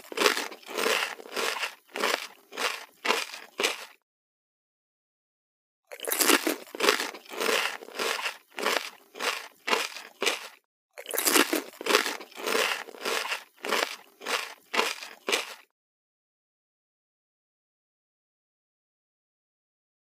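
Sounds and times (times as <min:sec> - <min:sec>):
repeated crunching: 0:00.0 - 0:04.0, 0:05.9 - 0:15.7.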